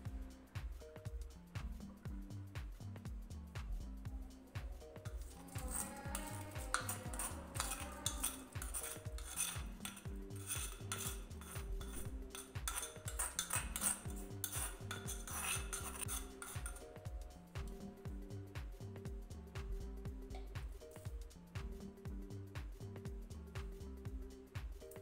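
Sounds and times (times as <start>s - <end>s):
background music: 0.0s - 25.0s
metal spoon scraping bowl: 5.1s - 17.0s.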